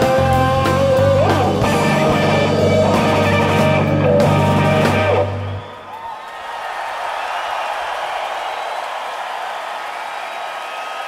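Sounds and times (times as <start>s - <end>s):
drums with cymbal hits: 0.0s - 5.6s
bass guitar: 0.0s - 5.7s
electric guitar: 0.0s - 5.7s.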